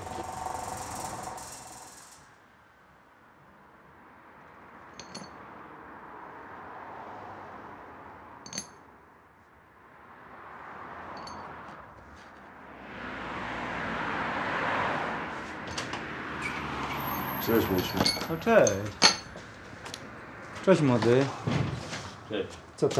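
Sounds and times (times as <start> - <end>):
broad rush of noise: 0.0 - 2.3
steady hiss: 0.0 - 2.3.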